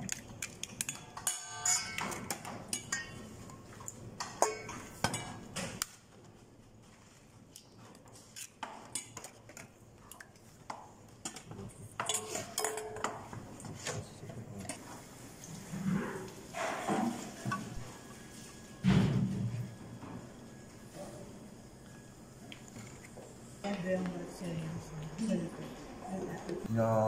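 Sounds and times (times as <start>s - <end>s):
dishes and utensils clinking: 0.1s - 5.8s, 11.2s - 14.0s, 16.5s - 18.4s.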